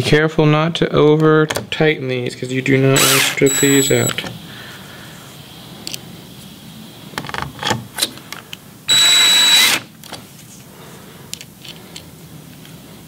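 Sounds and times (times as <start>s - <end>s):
drill motor whine: 3.0s - 4.2s, 8.9s - 9.8s.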